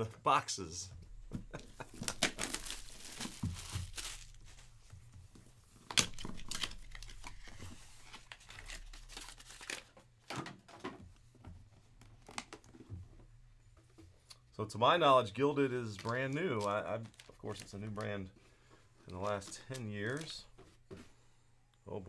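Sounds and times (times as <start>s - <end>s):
shrink wrap tearing and crinkling: 1.8s - 4.5s, 5.9s - 10.0s, 15.9s - 18.1s.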